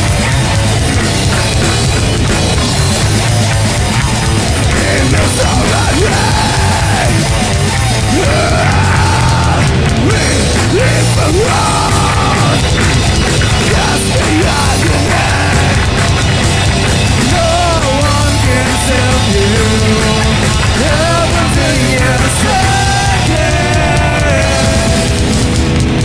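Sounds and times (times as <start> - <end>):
metalcore band playing: 0.0 - 26.0.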